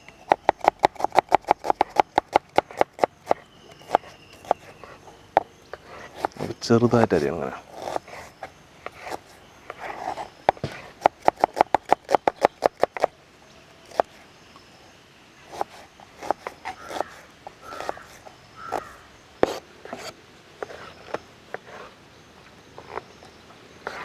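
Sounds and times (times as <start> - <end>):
knife chopping on plastic board: 0.3 - 4.6, 10.5 - 13.1.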